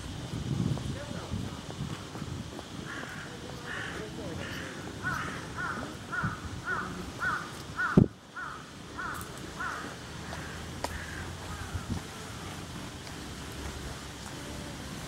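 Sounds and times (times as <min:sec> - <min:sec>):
crow cawing: 0:02.8 - 0:12.4.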